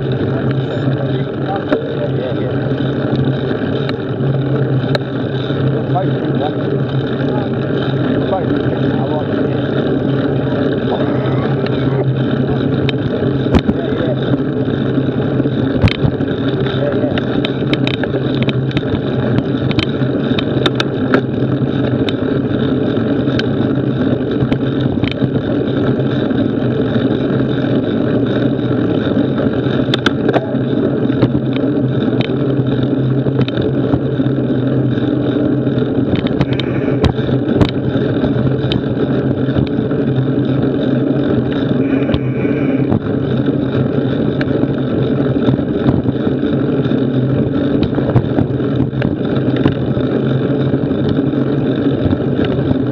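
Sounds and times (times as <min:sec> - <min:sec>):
bike clicks and rattles: 0:00.0 - 0:52.9
bike tyres rolling on dirt: 0:00.0 - 0:52.9.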